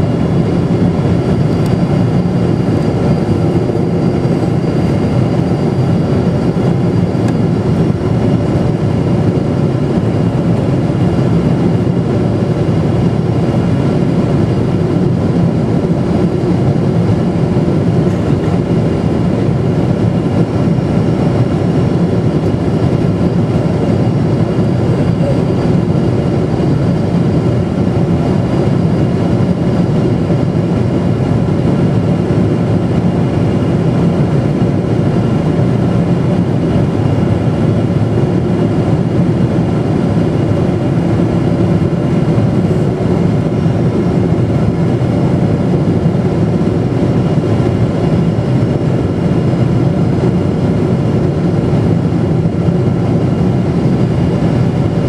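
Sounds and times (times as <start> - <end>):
jet engine and airflow rumble: 0.0 - 55.0.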